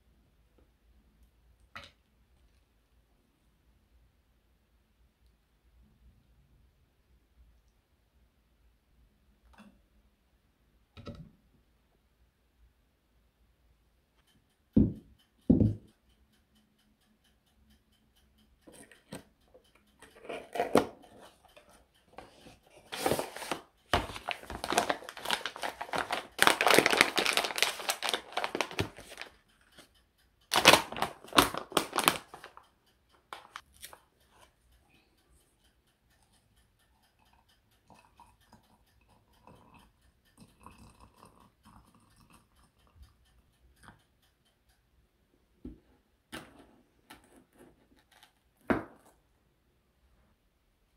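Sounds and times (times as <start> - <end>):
paper packaging rustling: 22.8 - 29.3, 30.5 - 32.6, 33.3 - 33.6.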